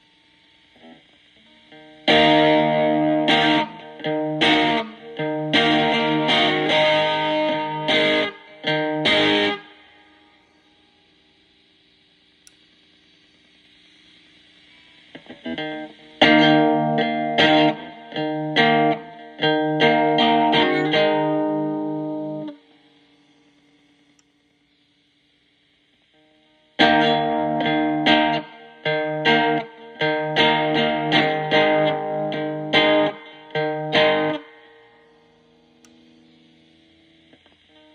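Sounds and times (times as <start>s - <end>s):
distorted electric guitar chords: 0.0s - 12.1s, 12.8s - 37.9s
faint hiss: 0.0s - 37.9s.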